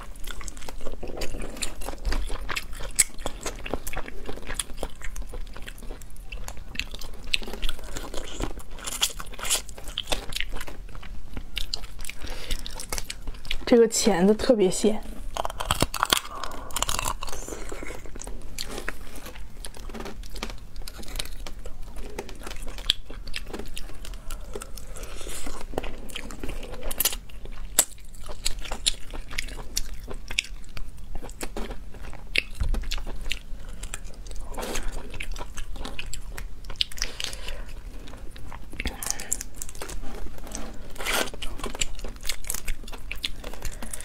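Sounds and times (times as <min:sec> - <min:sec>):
crunching crayfish shell: 0:00.0 - 0:13.8, 0:15.1 - 0:44.0.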